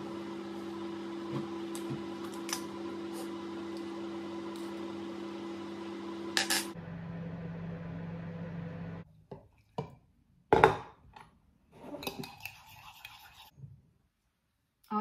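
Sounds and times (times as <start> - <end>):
kitchen appliance humming: 0.0 - 9.0.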